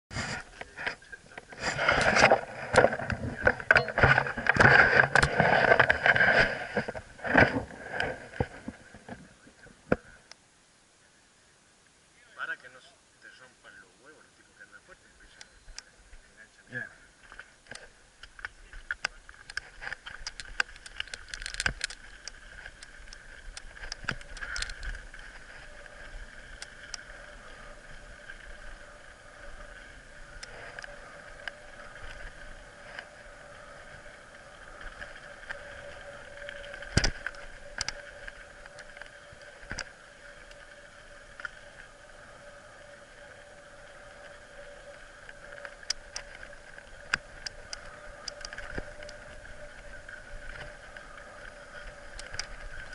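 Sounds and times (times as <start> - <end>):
bike rolling on dirt trail: 0.1 - 9.1, 17.4 - 52.9
whirring tone: 15.2 - 16.3, 19.3 - 52.9.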